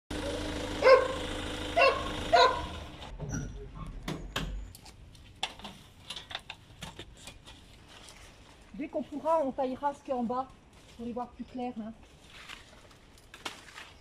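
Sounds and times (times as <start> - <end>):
dog barking: 0.8 - 1.2, 1.8 - 2.8.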